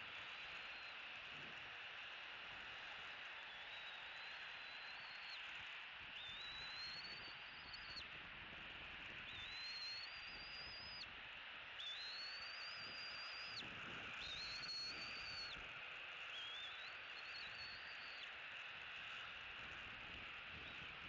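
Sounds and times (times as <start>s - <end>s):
bird whistled call: 3.2s - 5.5s, 6.1s - 8.1s, 9.2s - 11.1s, 11.8s - 15.6s, 16.3s - 18.4s.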